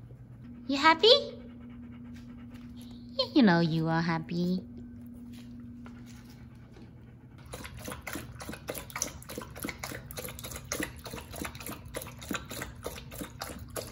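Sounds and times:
dog lapping water from bowl: 7.4 - 13.9.

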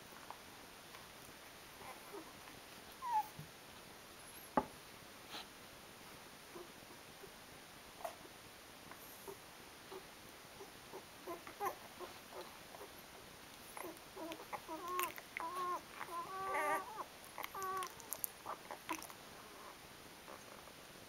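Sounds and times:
puppy squeaking and whimpering: 3.0 - 3.3, 13.8 - 19.0.

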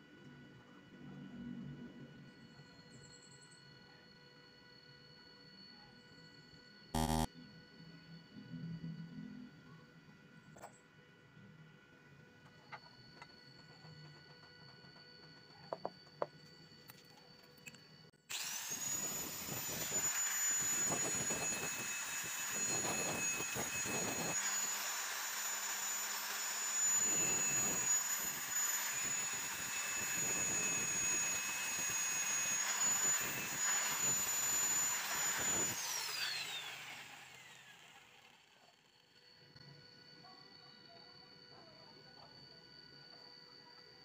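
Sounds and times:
angle grinder whining: 7.0 - 7.3, 18.3 - 39.7.

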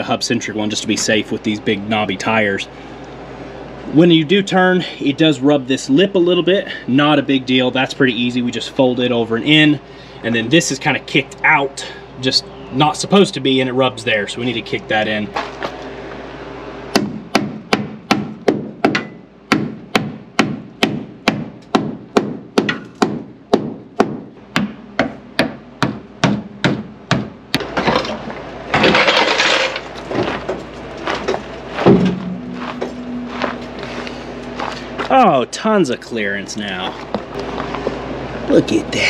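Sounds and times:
hammer beating sheet metal: 16.9 - 27.4
rushing noise: 31.2 - 35.3
thump: 31.8 - 32.8.

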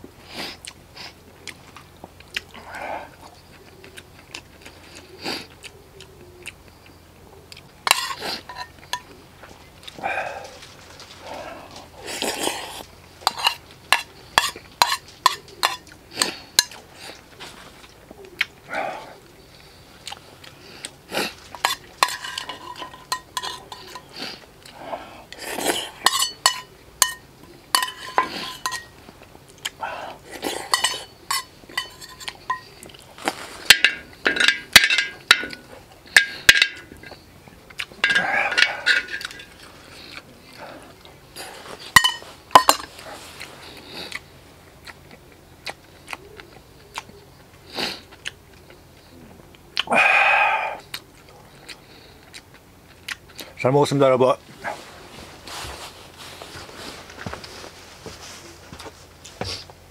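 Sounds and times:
utensils clinking on metal bowl: 7.8 - 9.2, 13.2 - 16.8, 21.4 - 24.2, 25.4 - 29.0, 30.4 - 37.2, 38.0 - 39.7, 41.8 - 43.0.

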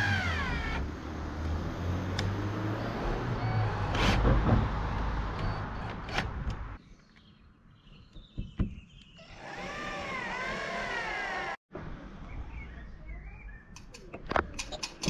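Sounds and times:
birds chirping: 6.8 - 10.4.

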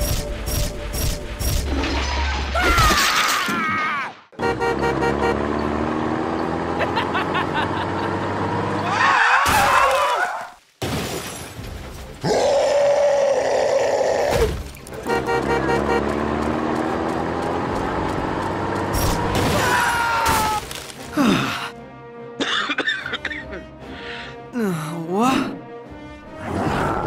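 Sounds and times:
music: 0.0 - 2.0, 11.6 - 16.0, 20.2 - 27.0
sound effects: 14.9 - 16.4.

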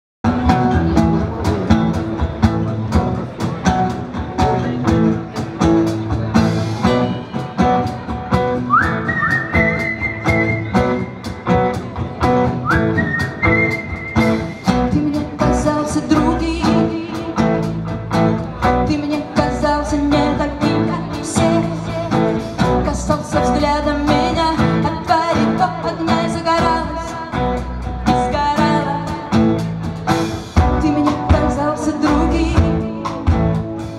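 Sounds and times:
pop-rock band playing: 0.2 - 33.9.

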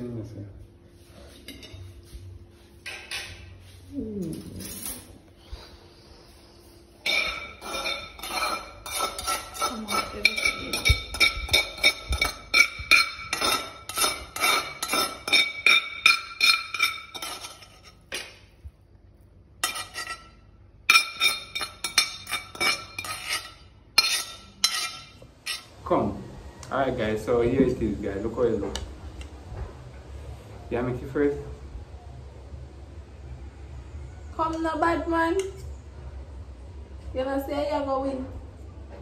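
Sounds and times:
metal fork clinking on metal pot: 7.0 - 18.3, 19.6 - 25.6.

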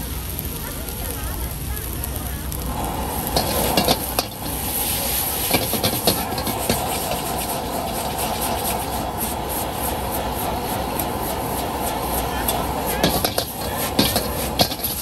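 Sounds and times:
gas burner rushing: 0.0 - 15.0
spatula scraping a steel wok: 3.2 - 15.0.

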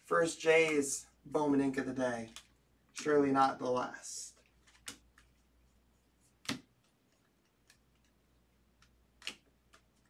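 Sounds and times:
cards clicking while flipped: 2.2 - 3.2, 4.3 - 5.4, 6.3 - 10.0.

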